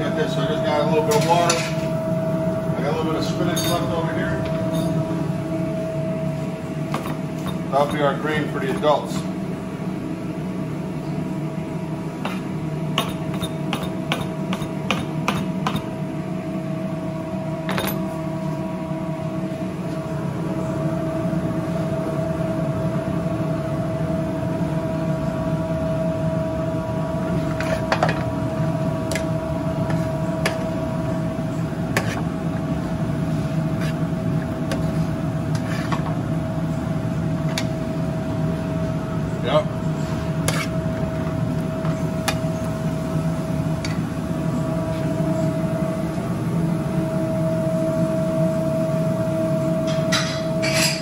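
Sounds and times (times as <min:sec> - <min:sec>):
kitchen equipment hum: 0:00.0 - 0:51.0
knife chopping on cutting board: 0:13.0 - 0:15.8.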